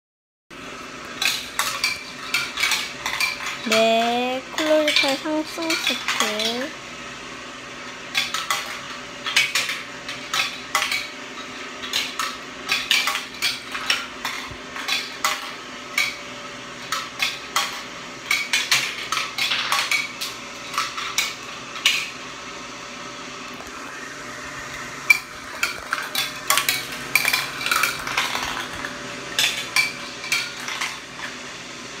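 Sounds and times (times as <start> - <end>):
marbles clattering through plastic run: 25.6 - 31.0.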